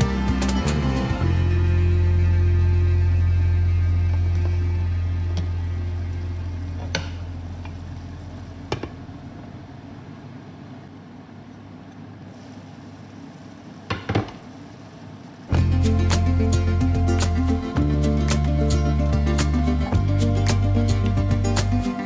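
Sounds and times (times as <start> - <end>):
background music: 0.0 - 6.7, 15.5 - 22.0
stew simmering in a pan: 3.2 - 16.4.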